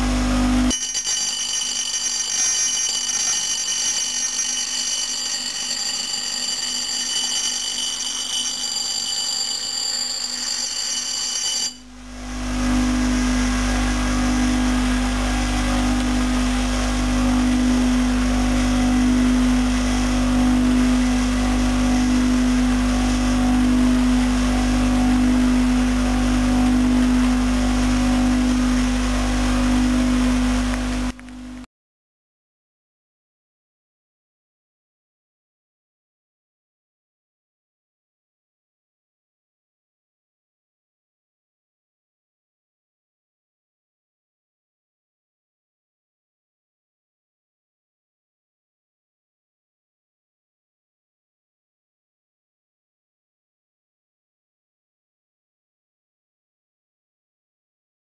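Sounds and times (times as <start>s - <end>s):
grinder motor humming: 0.0s - 31.6s
grinder grinding steel: 0.7s - 11.9s.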